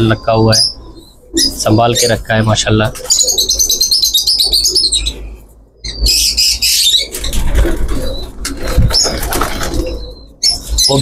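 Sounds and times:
pigeons calling: 0.0 - 11.0
wings flapping: 7.1 - 10.1.

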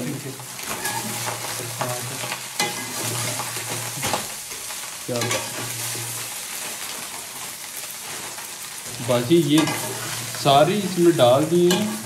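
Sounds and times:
food sizzling in hot oil: 0.0 - 12.0
spatula scraping pan: 0.6 - 4.6, 9.4 - 10.9.

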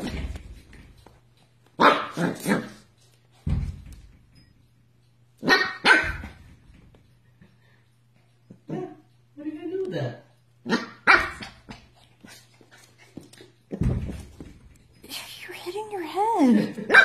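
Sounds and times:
puppy barking: 1.8 - 2.8, 5.4 - 6.4, 10.6 - 11.6.

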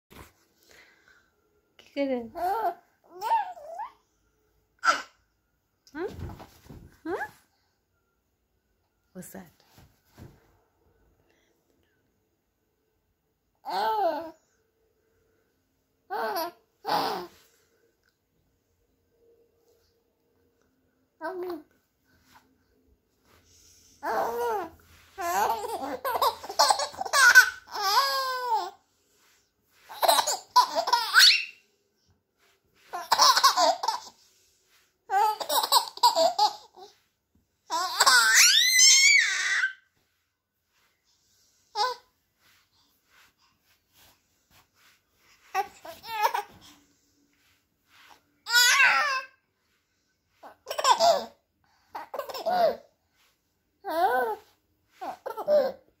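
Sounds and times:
baby laughing: 24.0 - 28.7, 29.9 - 31.6, 32.9 - 34.2, 35.1 - 36.9, 37.7 - 39.7, 45.6 - 46.6, 50.4 - 51.4, 52.0 - 52.8, 55.0 - 55.8.

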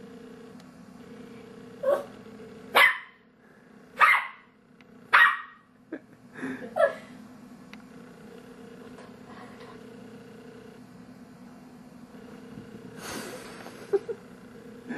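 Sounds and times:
dog barking sharply: 2.8 - 3.2, 4.0 - 4.5, 5.1 - 5.6.

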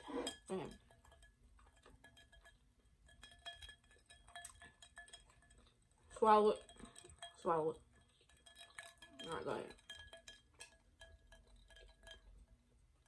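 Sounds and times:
ice clinking in a glass: 0.0 - 5.6, 6.2 - 12.4.

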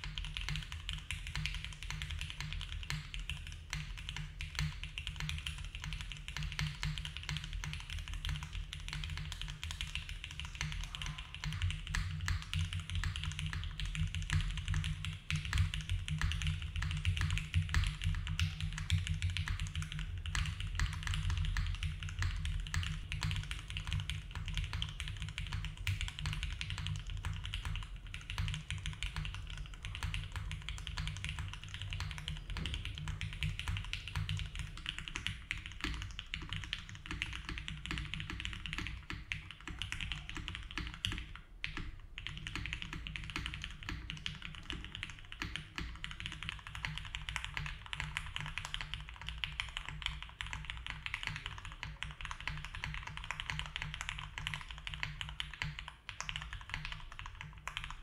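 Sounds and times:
keyboard keystroke clacks: 0.0 - 58.0.

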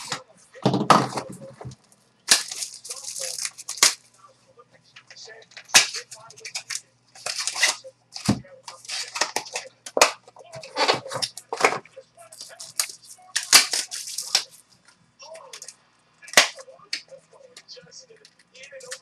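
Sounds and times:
card pack wrappers crinkling: 2.3 - 4.1, 5.3 - 14.8, 18.2 - 19.0.

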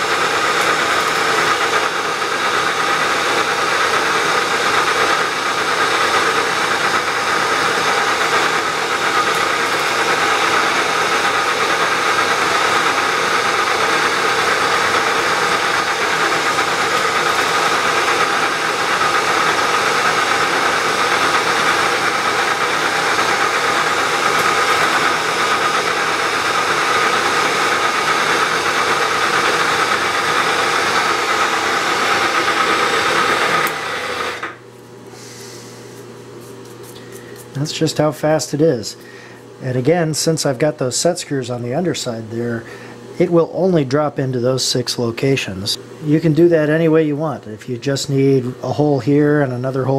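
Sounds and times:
milling machine drilling: 0.0 - 34.6.

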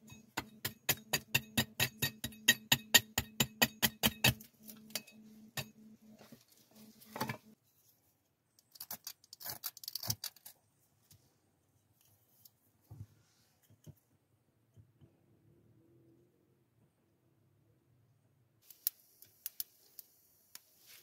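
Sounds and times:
hatchet chopping wood: 0.4 - 4.5.

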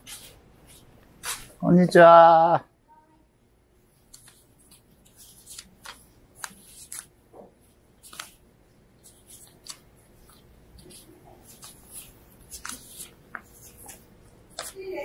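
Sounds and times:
paper banknotes rustling: 0.0 - 1.6, 4.0 - 15.0.

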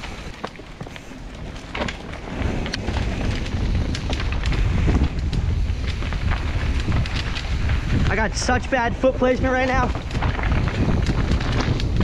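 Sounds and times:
tyres clicking over rocks: 0.0 - 8.7
wind rumbling over microphone: 0.0 - 12.0.

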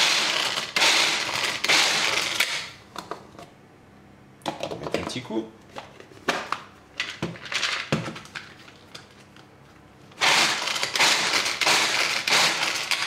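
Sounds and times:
nuts rattling in a chopper: 0.0 - 2.8, 10.2 - 13.0.

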